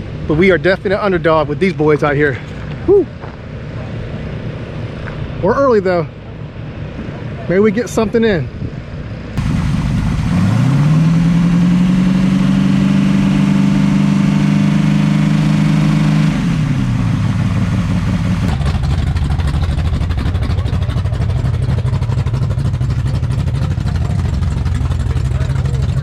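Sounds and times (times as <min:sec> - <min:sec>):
car engine revving and idling: 0:09.0 - 0:26.0.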